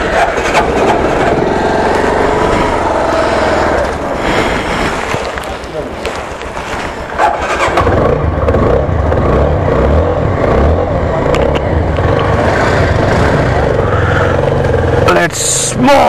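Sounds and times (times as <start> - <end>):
motorcycle engine running: 0.0 - 4.2, 7.1 - 15.7
rushing noise: 0.0 - 15.6.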